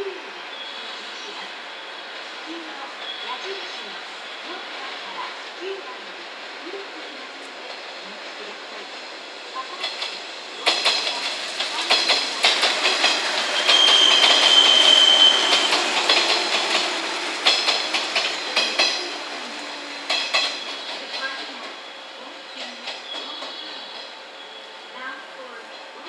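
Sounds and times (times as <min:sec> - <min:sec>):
train wheels clicking over rail joints: 0:09.7 - 0:21.9
high squeal from running gear: 0:13.0 - 0:16.6.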